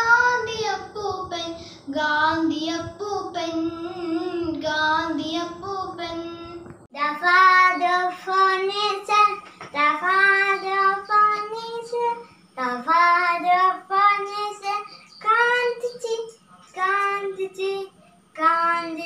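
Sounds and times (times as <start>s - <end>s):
girl breathing: 1.6s - 1.9s.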